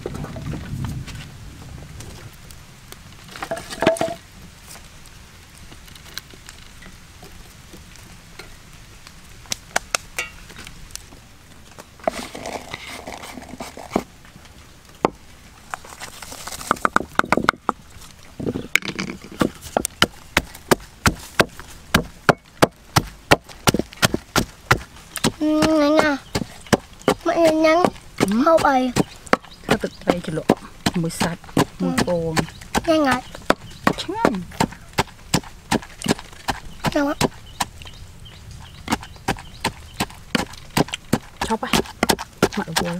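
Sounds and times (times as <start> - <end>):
scattered knocks and clatter: 3.3 - 4.2, 16.5 - 17.8, 18.6 - 25.3
pestle pounding in clay mortar: 18.8 - 37.7, 38.9 - 42.9.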